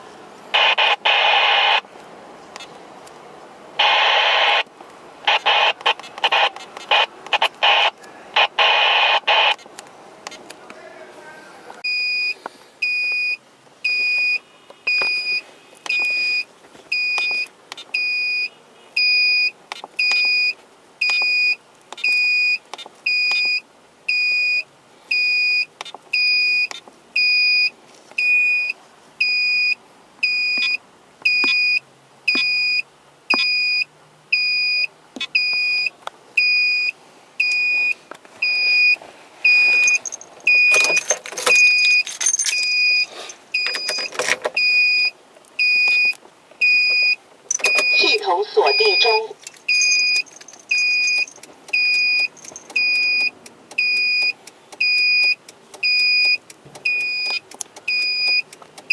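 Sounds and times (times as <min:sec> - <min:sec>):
electronic warning beeper: 0:34.4 - 0:58.5.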